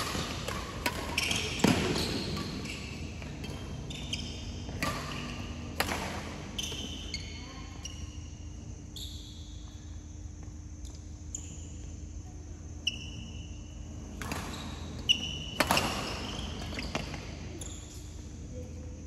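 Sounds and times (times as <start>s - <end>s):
racket hitting shuttlecock: 0.0s - 3.8s, 4.6s - 6.8s, 15.6s - 17.2s
shoes squeaking on court floor: 0.0s - 9.9s, 12.8s - 18.5s.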